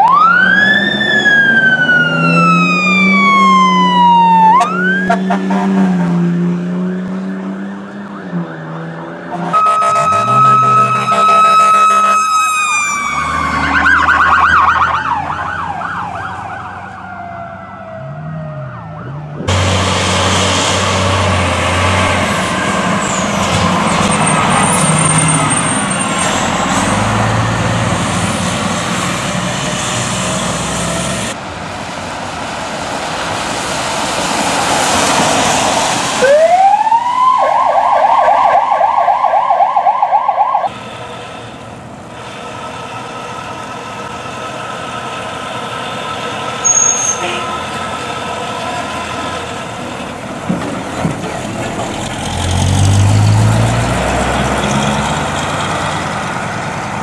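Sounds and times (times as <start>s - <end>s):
electronic siren yelp: 0.0s - 5.3s, 6.9s - 19.5s, 36.2s - 40.7s
fire truck siren wailing: 0.0s - 31.4s, 34.6s - 50.4s
fire truck engine passing: 0.0s - 57.0s
air horn blasts: 4.5s - 6.1s, 9.3s - 12.5s, 46.6s - 47.6s.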